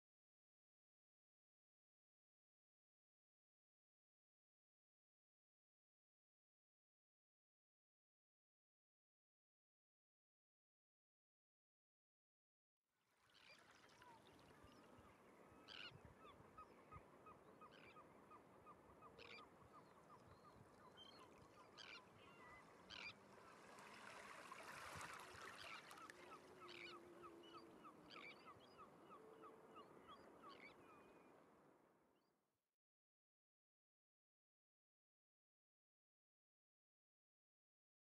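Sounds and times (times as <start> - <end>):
wind: 13.0 - 32.4
shore birds calling: 13.4 - 31.4
calm sea hiss: 23.2 - 26.7.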